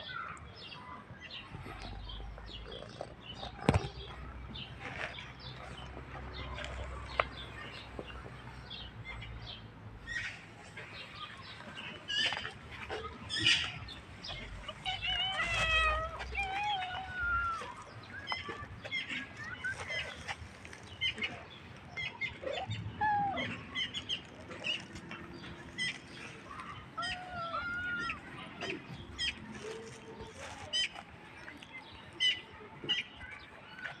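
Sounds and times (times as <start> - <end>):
small birds chirping: 0.0 - 34.0
cats meowing: 12.2 - 18.6, 26.9 - 28.8.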